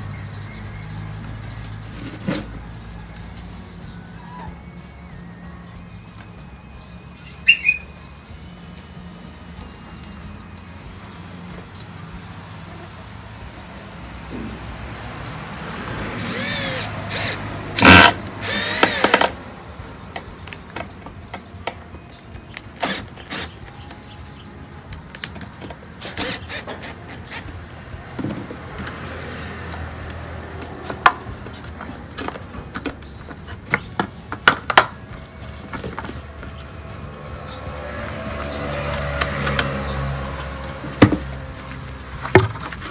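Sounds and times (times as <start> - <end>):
power drill driving a screw: 16.2 - 19.4, 22.8 - 23.6, 26.0 - 27.4.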